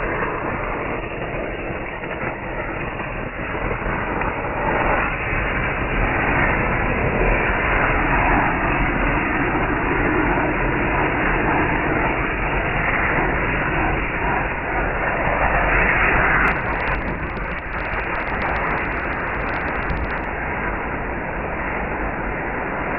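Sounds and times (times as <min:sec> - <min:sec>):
firecrackers crackling under a tub: 0:16.3 - 0:20.4.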